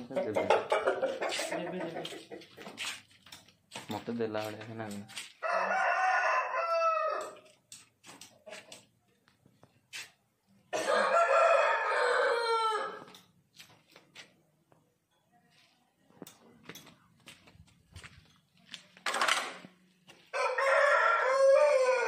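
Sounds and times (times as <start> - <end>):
rooster crowing: 5.4 - 7.4, 10.8 - 13.1, 20.3 - 22.0.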